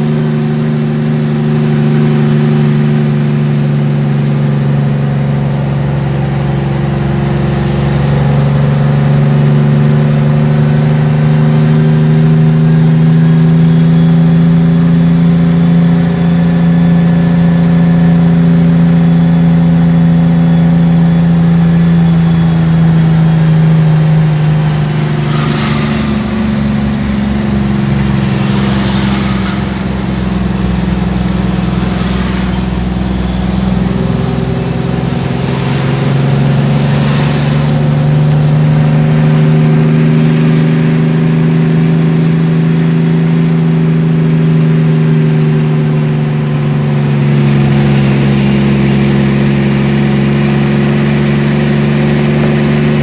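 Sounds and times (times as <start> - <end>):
diesel truck engine running: 0.0 - 53.0
short hisses: 22.3 - 38.8.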